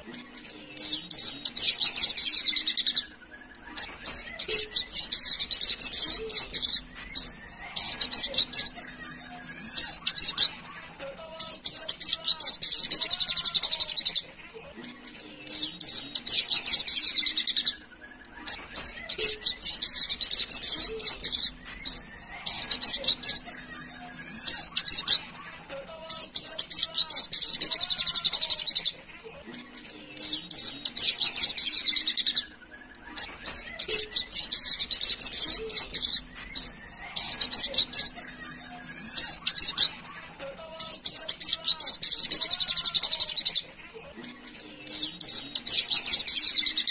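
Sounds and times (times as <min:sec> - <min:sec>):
sunbird twittering song: 0:00.0 - 0:10.6, 0:11.4 - 0:14.2, 0:15.3 - 0:25.3, 0:33.2 - 0:40.0.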